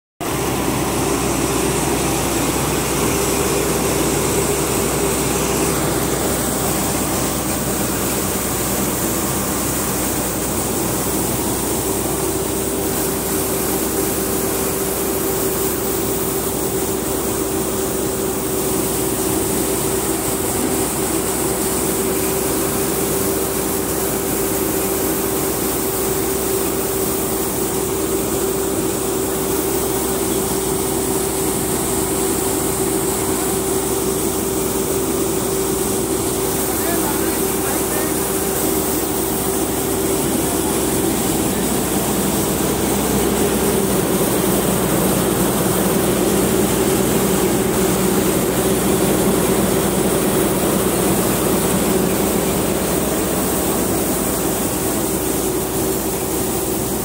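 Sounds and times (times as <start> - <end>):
auger pouring grain with whine: 0.2 - 57.0
combine harvester engine running: 0.2 - 57.0.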